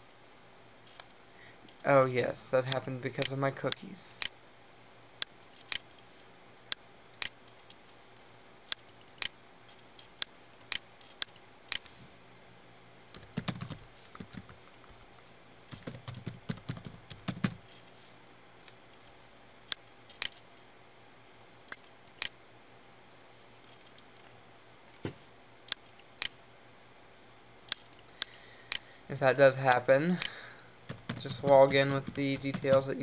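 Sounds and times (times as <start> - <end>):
typing on computer keyboard: 13.2 - 14.6, 15.7 - 17.6, 30.9 - 33.0.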